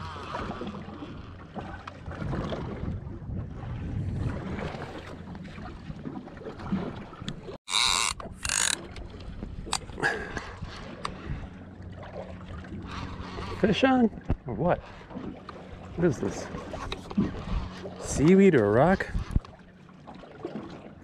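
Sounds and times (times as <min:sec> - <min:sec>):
choppy water around boat: 0:00.0 - 0:21.0
wind on microphone: 0:02.1 - 0:06.1, 0:18.8 - 0:19.5.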